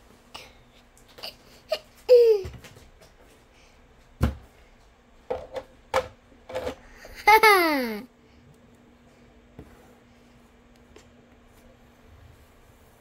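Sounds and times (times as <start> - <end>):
toddler crying: 7.2 - 8.0.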